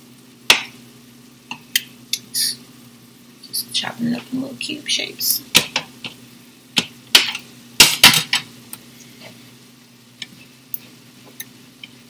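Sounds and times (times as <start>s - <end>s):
utensils knocking on plate and skillet: 0.5s - 0.8s, 5.5s - 6.2s, 6.8s - 8.5s.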